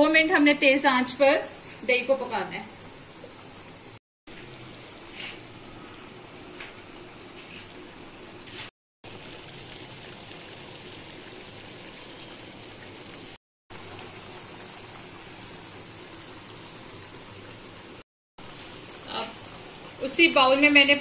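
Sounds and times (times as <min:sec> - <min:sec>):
chicken sizzling in a frying pan: 0:09.0 - 0:21.0.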